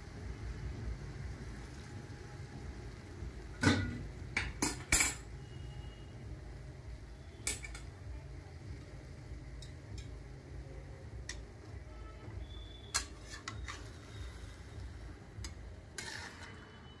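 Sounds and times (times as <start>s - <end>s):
metal utensils clinking: 3.6s - 5.3s, 7.4s - 7.9s, 12.9s - 14.1s.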